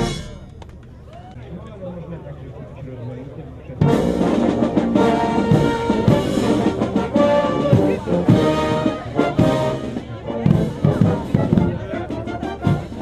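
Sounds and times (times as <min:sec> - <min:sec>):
marching brass band playing: 0:00.0 - 0:00.6, 0:03.8 - 0:13.0.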